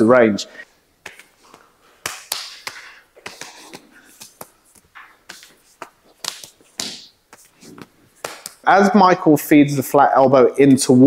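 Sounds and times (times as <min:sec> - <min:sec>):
palms slapping forearms: 0:01.0 - 0:08.7
clothing swishing: 0:03.2 - 0:08.5.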